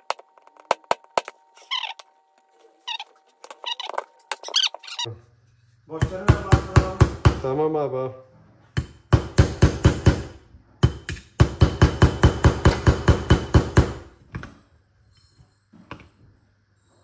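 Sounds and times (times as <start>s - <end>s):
hammer tapping steel punch: 8.8s - 14.0s.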